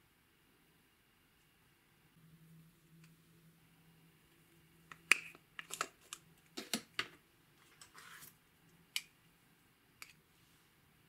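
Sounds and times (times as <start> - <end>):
soft scrape: 7.6 - 8.4.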